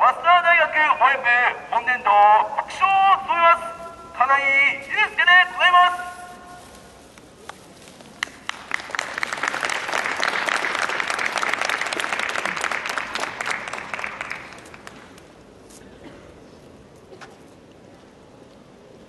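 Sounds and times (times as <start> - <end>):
audience applauding: 8.2 - 15.2.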